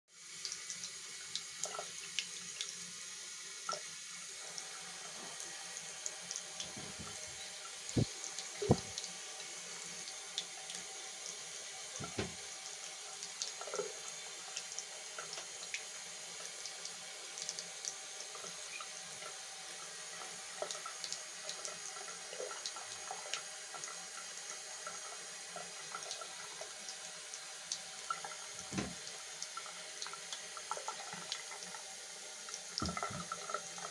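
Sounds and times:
small drip ticks: 0.4s - 2.7s, 6.3s - 9.5s, 12.9s - 31.8s
tap running into sink: 6.6s - 7.4s, 8.0s - 9.0s, 12.0s - 12.6s, 28.6s - 29.1s, 32.8s - 33.6s
soft knocks: 6.7s - 7.3s, 8.0s - 8.9s, 12.0s - 12.4s, 28.7s - 29.0s.

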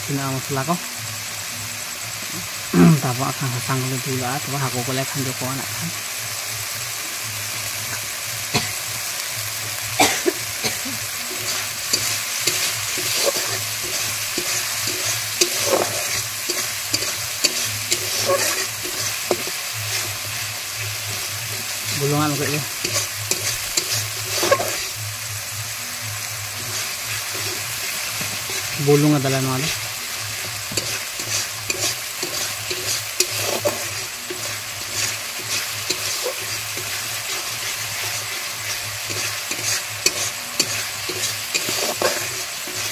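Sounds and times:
spice paste sizzling in a pan: 0.0s - 42.9s
metal spatula scraping a pan: 11.0s - 25.0s, 26.4s - 42.9s.

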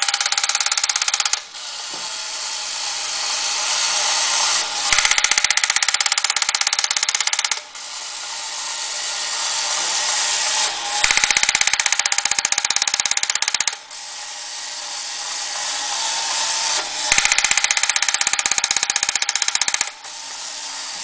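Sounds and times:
toy tank gears clicking: 0.0s - 1.7s, 3.9s - 8.1s, 9.3s - 14.0s, 15.5s - 21.0s
toy tank whirring: 0.0s - 21.0s.

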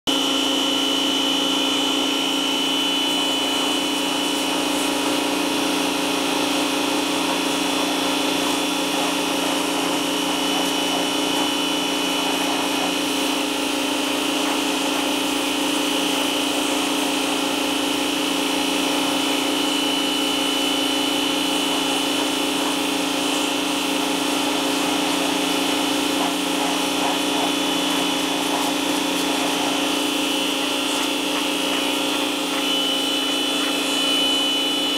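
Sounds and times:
pressure washer running: 0.1s - 34.9s.

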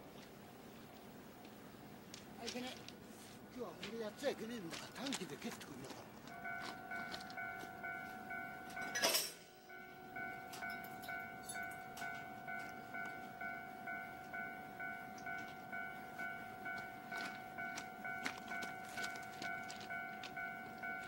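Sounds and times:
electronic railway warning bell: 6.2s - 21.0s.

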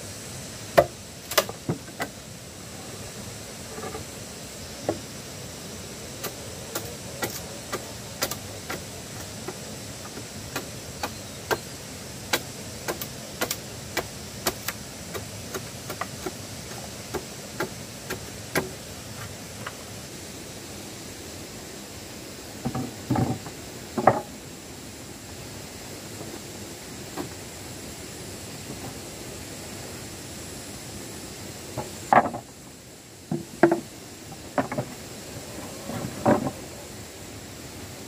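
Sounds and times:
steady hiss: 0.0s - 38.0s
blade chopping wooden plank: 6.2s - 8.8s, 12.3s - 18.8s.

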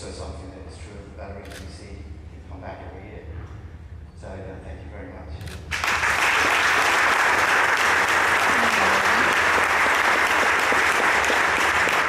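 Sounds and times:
audience applauding: 5.7s - 12.0s
hands clapping close to microphone: 5.7s - 12.0s.

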